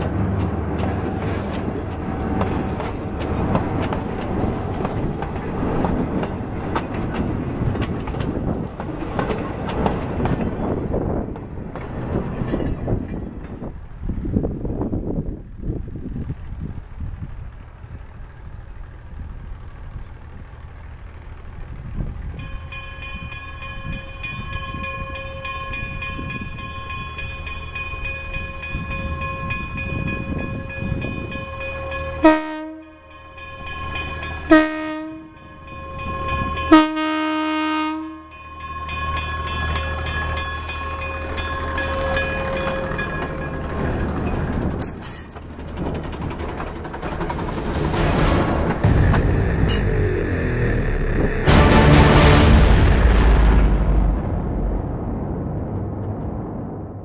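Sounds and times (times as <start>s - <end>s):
rail car engine and wheel noise: 0.0s - 57.0s
rail car horn blasts: 30.8s - 43.1s.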